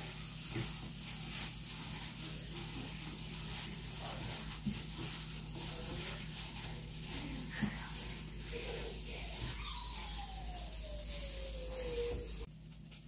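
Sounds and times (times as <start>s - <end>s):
scratchy scrapes: 0.0s - 12.5s
rice flakes rustling in a bowl: 0.0s - 13.0s.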